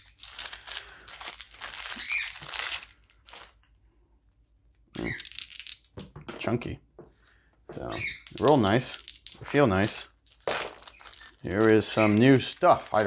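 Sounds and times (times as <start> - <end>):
plastic bag crinkling and tearing: 0.0 - 3.7, 9.9 - 13.0.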